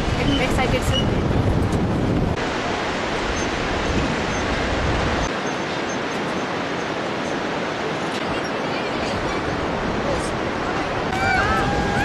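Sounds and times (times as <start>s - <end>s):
wind rumble on microphone: 0.0s - 5.6s, 6.2s - 12.0s
river rapids rushing: 2.4s - 12.0s.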